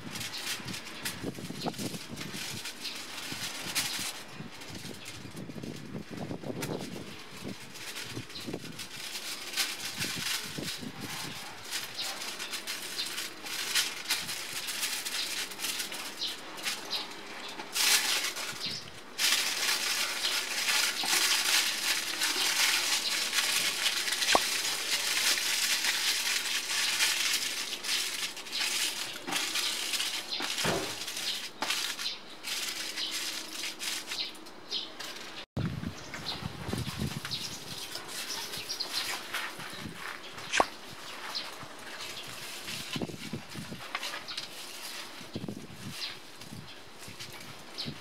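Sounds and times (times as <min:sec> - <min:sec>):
aluminium foil crinkling: 0:00.0 - 0:35.5, 0:36.2 - 0:48.0.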